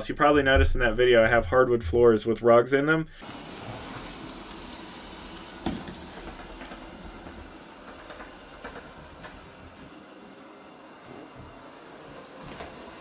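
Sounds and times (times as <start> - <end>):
robot vacuum whirring: 3.2 - 13.0.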